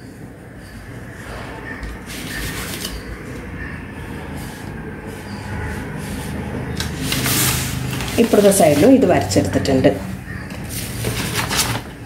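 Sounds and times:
pen scratching on paper: 4.0s - 9.2s.

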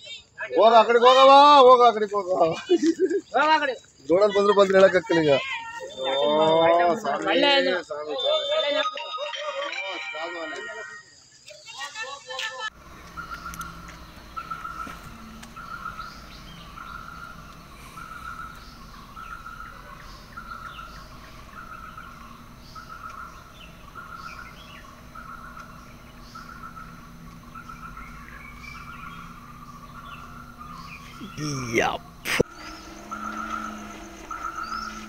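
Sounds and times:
bird chirps: 12.7s - 35.0s
low steady hum: 12.7s - 35.0s
trilled call: 12.7s - 35.0s.

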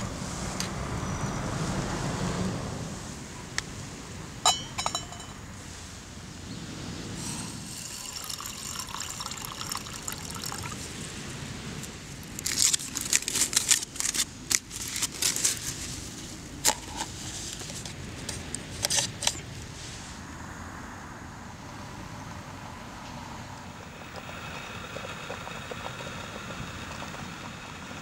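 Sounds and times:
water trickling into a cup: 7.6s - 11.0s
aluminium foil crinkling: 12.2s - 17.8s.

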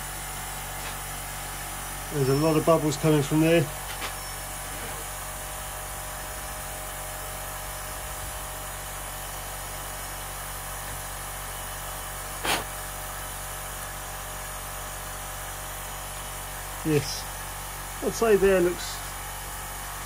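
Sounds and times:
compressed air hissing: 12.3s - 13.0s.

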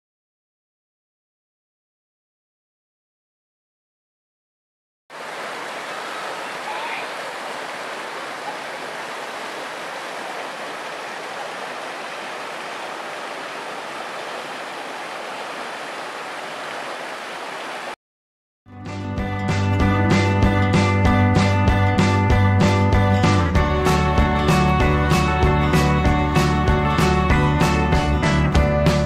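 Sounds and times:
river rushing over rapids: 5.1s - 18.0s
music: 18.7s - 29.0s.

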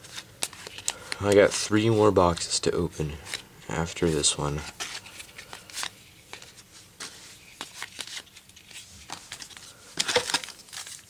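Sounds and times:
paper cards rustling: 0.0s - 11.0s
foil pack crinkling: 7.4s - 11.0s.

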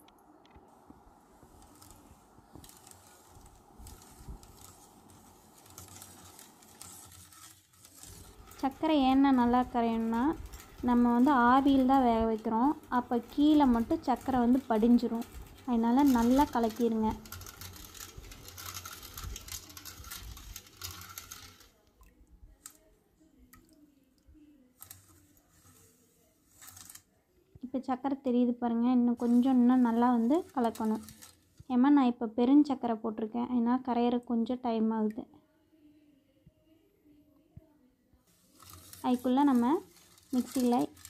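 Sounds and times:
spoon scraping metal bowl: 1.7s - 21.7s.

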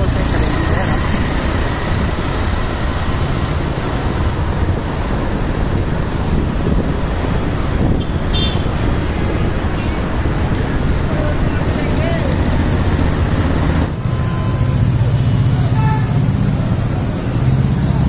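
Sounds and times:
road traffic rumble: 0.0s - 18.0s
wind rumbling on microphone: 1.1s - 14.1s.

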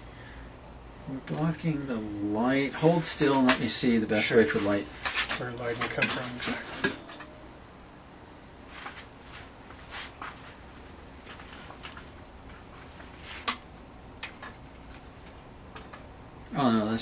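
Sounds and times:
soft handling clicks and rustles: 2.9s - 7.3s, 8.7s - 16.1s.

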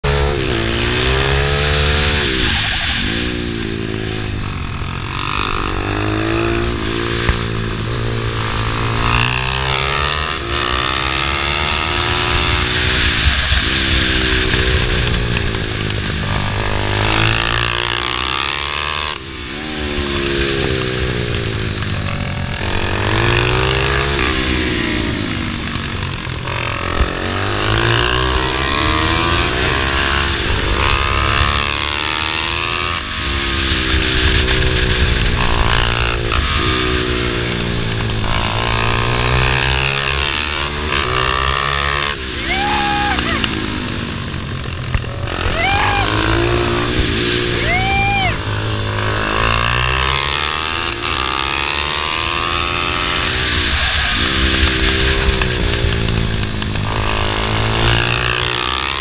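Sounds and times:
pit bike engine revving: 0.0s - 59.0s
wind rushing over microphone: 19.8s - 51.2s.

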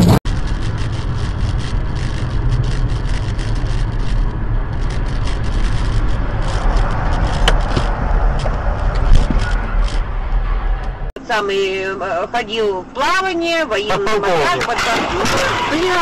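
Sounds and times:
road and tyre rumble in car: 0.0s - 11.2s, 12.6s - 16.0s
light clicks and crackles: 0.3s - 10.0s.

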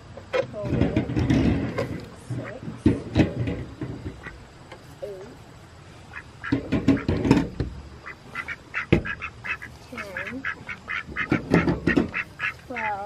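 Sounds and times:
poultry calling: 1.7s - 3.0s, 4.0s - 5.4s, 6.0s - 13.0s.

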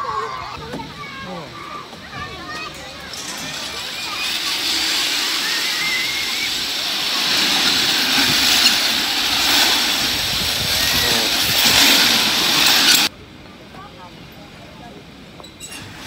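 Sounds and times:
metal roller slide rattling: 2.1s - 13.1s, 15.5s - 16.0s.

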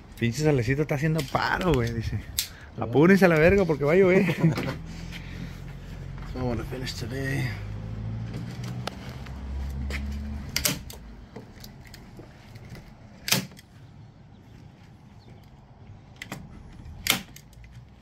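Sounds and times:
staple gun firing: 17.0s - 17.5s.

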